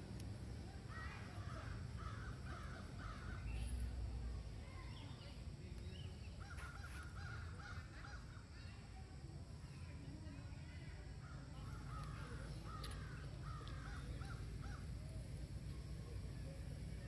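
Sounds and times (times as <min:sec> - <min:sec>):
crows cawing: 0:00.9 - 0:03.4.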